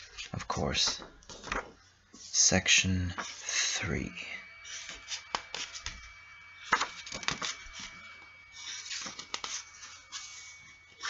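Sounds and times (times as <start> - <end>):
faint high whine: 0.0 - 11.0.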